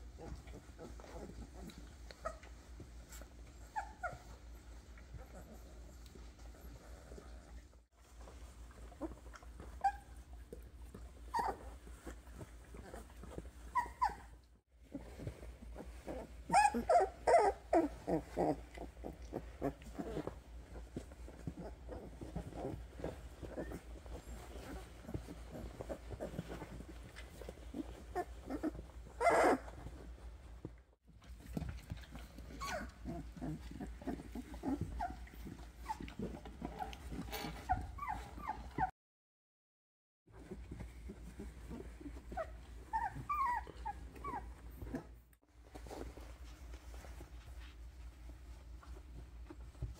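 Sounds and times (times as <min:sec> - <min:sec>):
scratching on bedding: 0:00.0 - 0:38.9, 0:40.3 - 0:49.9
puppies whimpering and squeaking: 0:00.1 - 0:30.2, 0:31.4 - 0:38.9, 0:40.3 - 0:45.2
high puppy cries: 0:09.6 - 0:10.3, 0:11.3 - 0:12.1, 0:13.6 - 0:14.4, 0:15.9 - 0:20.3, 0:27.5 - 0:30.0, 0:32.5 - 0:36.1, 0:42.1 - 0:44.5.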